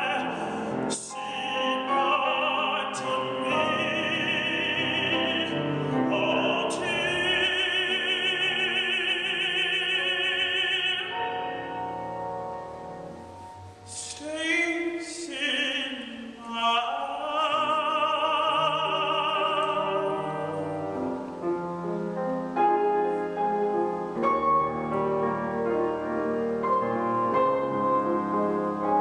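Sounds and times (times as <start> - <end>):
tenor singing with vibrato: 0.0 - 21.4
piano accompaniment: 0.0 - 29.0.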